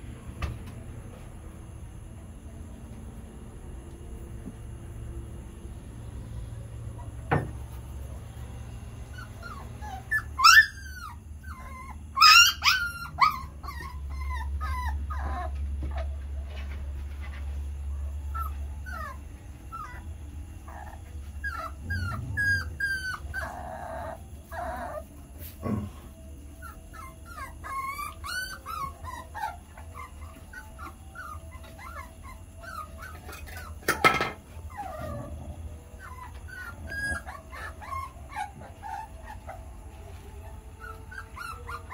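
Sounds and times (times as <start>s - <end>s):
dogs whimpering and yipping: 8.9s - 41.9s
dog yelping: 9.1s - 16.2s, 18.3s - 25.2s, 26.6s - 35.4s, 36.0s - 39.7s, 40.4s - 41.9s.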